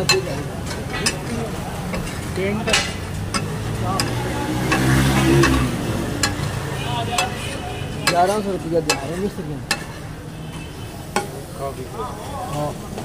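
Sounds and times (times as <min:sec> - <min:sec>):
metal spatula scraping griddle: 0:00.0 - 0:06.6.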